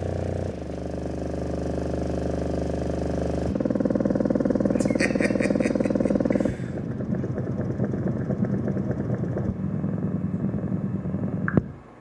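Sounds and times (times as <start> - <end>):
low bass test tone: 3.4 - 11.8.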